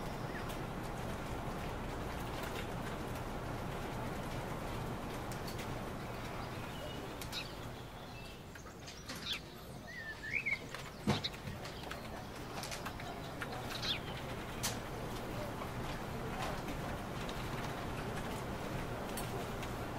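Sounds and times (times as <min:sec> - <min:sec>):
steady low hiss: 0:00.0 - 0:11.0
bird chirps: 0:06.3 - 0:14.3.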